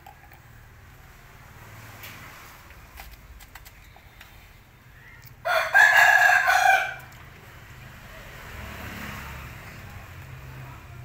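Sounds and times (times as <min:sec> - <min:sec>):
rooster crowing: 0:05.4 - 0:07.1.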